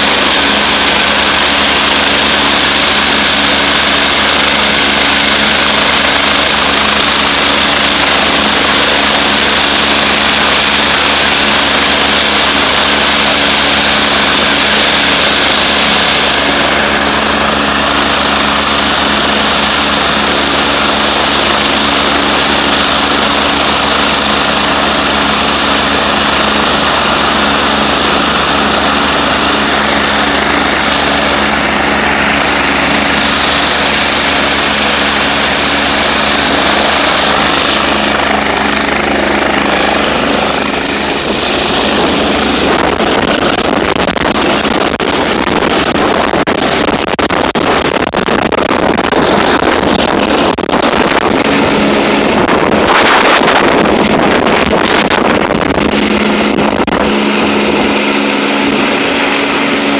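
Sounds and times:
helicopter engines and rotor running: 0.0s - 59.9s.

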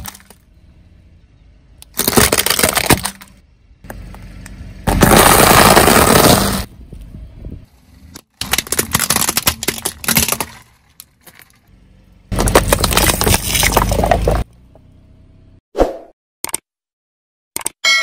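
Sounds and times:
plastic bottles crunching and bursting: 0.0s - 0.4s, 1.8s - 3.4s, 4.9s - 6.7s, 8.2s - 11.6s, 12.3s - 14.4s
tyre crushing brittle plastic: 0.0s - 0.4s, 1.8s - 3.4s, 4.9s - 6.7s, 8.2s - 11.7s, 12.3s - 14.4s.

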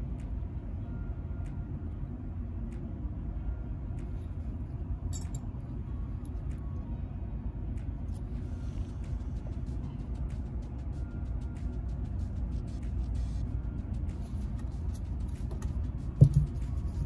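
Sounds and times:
low background rumble: 0.0s - 17.0s
metal bolts and nuts clinking: 5.1s - 5.4s.

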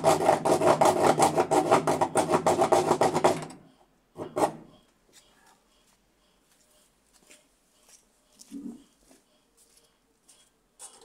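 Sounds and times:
hand saw cutting plastic: 0.0s - 3.6s, 4.2s - 4.6s.

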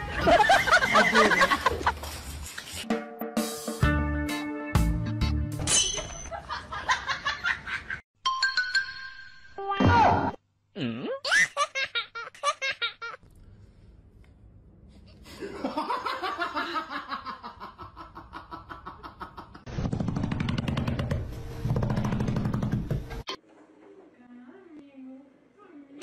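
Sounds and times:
people laughing: 0.0s - 2.0s, 15.4s - 19.7s.

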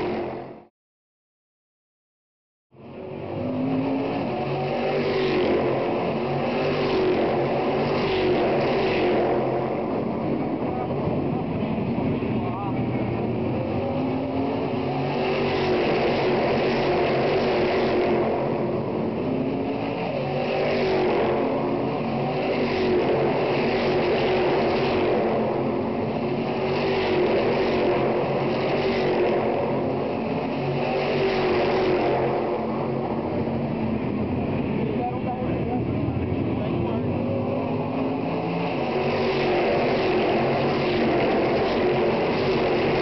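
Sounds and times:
race cars passing at speed: 0.0s - 0.7s, 2.8s - 43.0s.

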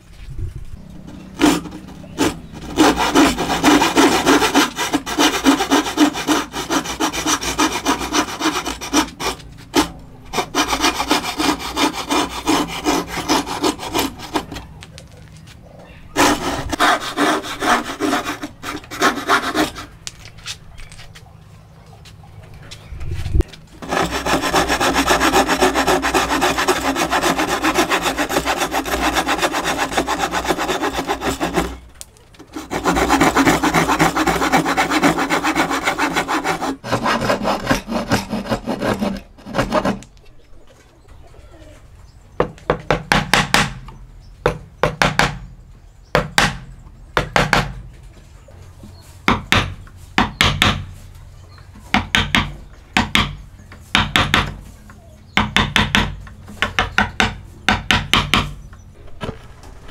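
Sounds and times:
hand saw cutting wood: 1.1s - 14.8s, 16.2s - 20.0s, 23.8s - 40.1s.

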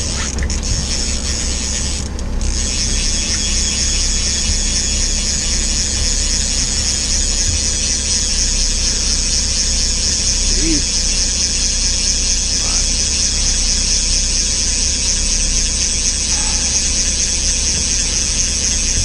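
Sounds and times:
fishing reel ratcheting: 0.0s - 19.0s
outboard motor idling: 0.0s - 19.0s.

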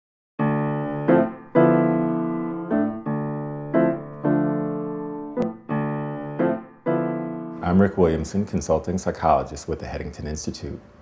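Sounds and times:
piano chords: 0.4s - 9.1s.

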